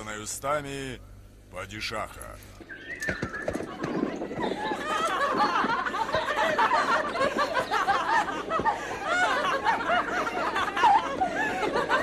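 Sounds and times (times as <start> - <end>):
group of people laughing: 3.5 - 12.0.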